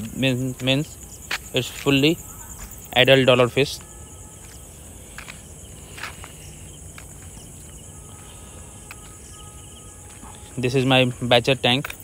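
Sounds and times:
crickets chirring: 0.0s - 12.0s
low hum: 2.2s - 10.7s.

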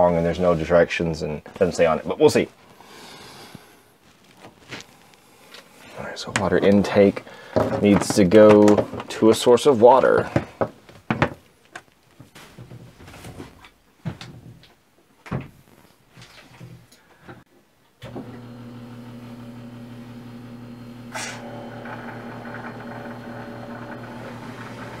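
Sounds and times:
water pump humming: 18.0s - 25.0s.

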